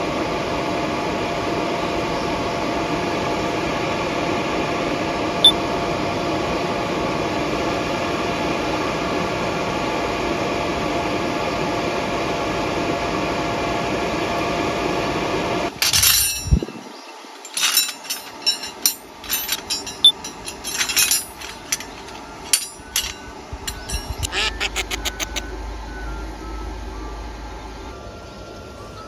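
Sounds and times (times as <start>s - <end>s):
machine whirring with hum: 0.0s - 29.0s
clicks and knocks: 17.4s - 24.3s.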